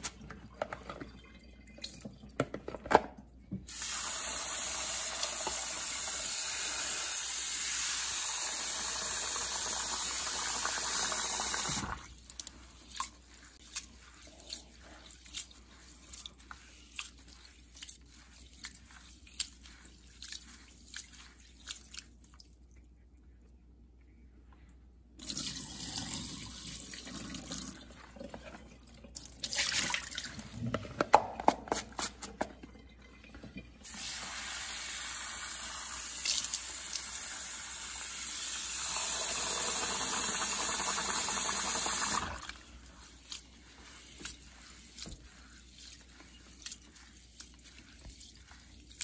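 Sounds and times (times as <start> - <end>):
hands sloshing rice in water: 11.6 - 23.0, 26.5 - 30.7, 41.6 - 49.0.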